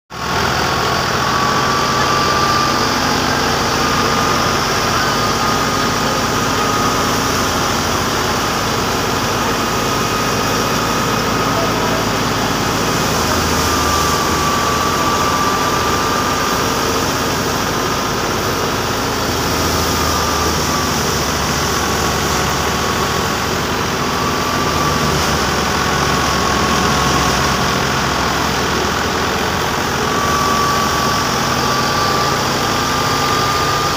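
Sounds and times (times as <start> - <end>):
threshing machine droning: 0.1 - 33.9
thin high whine: 0.2 - 33.9.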